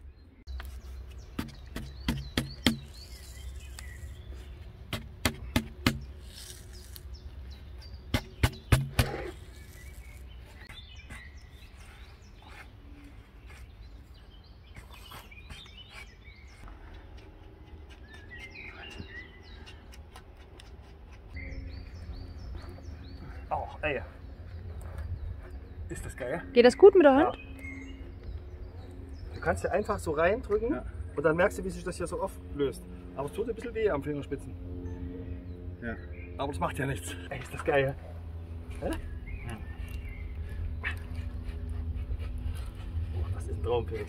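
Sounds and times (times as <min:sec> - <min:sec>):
birds chirping: 0:00.0 - 0:44.0
sharp knocks: 0:08.1 - 0:09.3.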